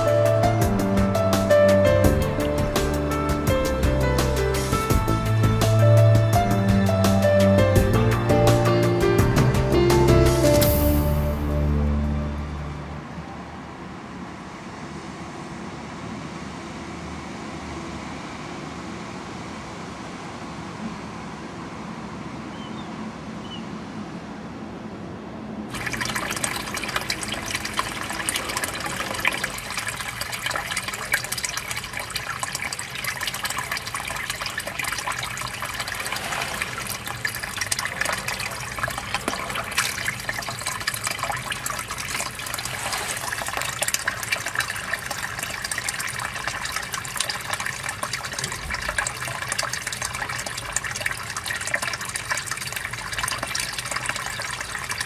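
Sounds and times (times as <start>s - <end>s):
river water flowing: 25.7s - 55.0s
water splashing: 25.7s - 55.0s.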